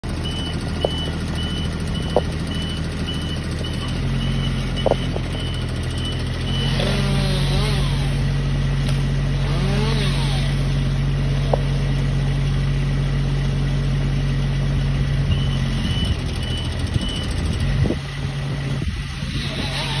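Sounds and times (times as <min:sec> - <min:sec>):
boom hydraulic whine: 0:00.0 - 0:12.0, 0:14.9 - 0:20.0
lift engine running: 0:00.0 - 0:20.0
motion alarm beeping: 0:00.2 - 0:06.8, 0:15.3 - 0:17.6.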